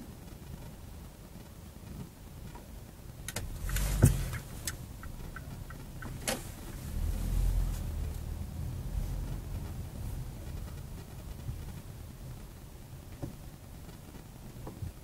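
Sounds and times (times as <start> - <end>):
car engine and road rumble: 0.0 - 15.0
small clicks and ticks: 1.4 - 6.9.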